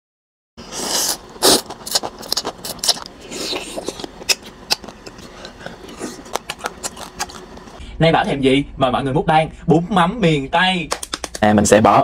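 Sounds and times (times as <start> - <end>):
noodles slurped: 0.6 - 7.8
wet chewing clicks and smacks: 1.4 - 7.8.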